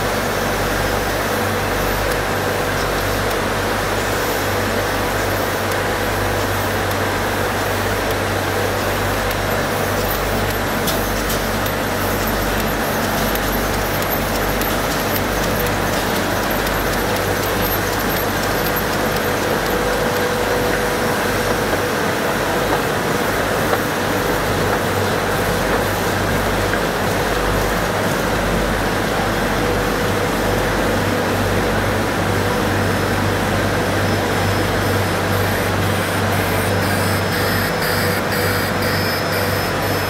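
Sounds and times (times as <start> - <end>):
printing press running: 0.0 - 40.0.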